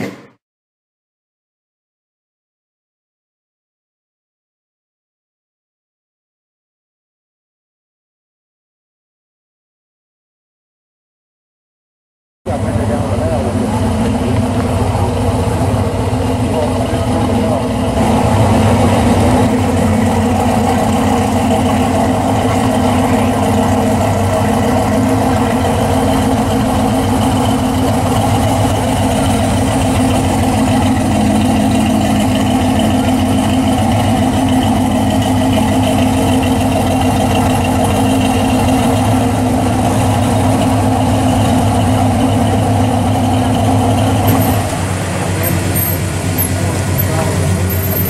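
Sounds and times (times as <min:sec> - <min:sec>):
car engine idling: 0:12.5 - 0:48.0.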